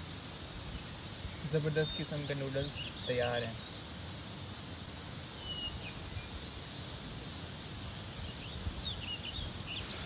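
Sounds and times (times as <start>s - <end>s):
low background noise: 0.0s - 10.0s
high bird chirps: 8.3s - 10.0s.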